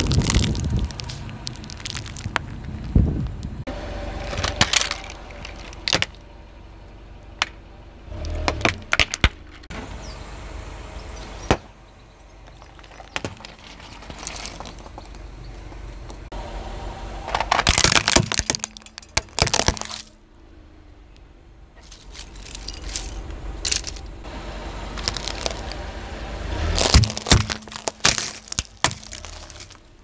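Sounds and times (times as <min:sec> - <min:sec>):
plastic cracking under car tyre: 0:00.0 - 0:03.4, 0:17.3 - 0:20.1, 0:25.0 - 0:25.8, 0:26.7 - 0:30.0
car low rumble: 0:00.0 - 0:30.0.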